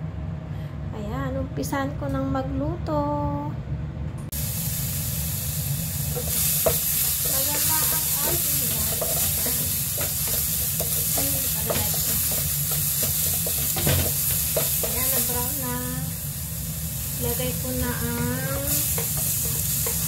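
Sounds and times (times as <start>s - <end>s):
ginger and garlic sizzling: 4.3s - 20.0s.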